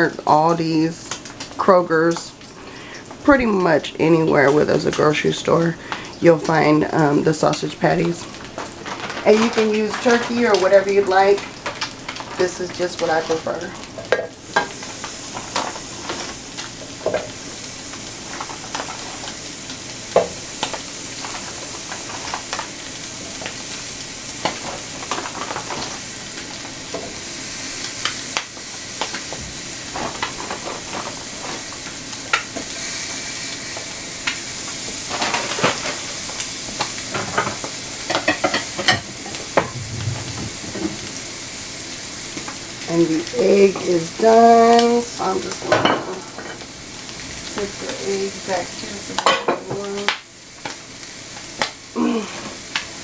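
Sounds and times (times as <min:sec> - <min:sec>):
eggs sizzling in a skillet: 0:00.0 - 0:53.0.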